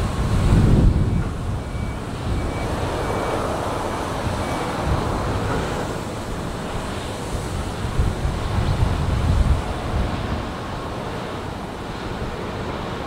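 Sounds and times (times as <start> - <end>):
churned water: 0.0 - 13.0
wind on microphone: 0.0 - 13.0.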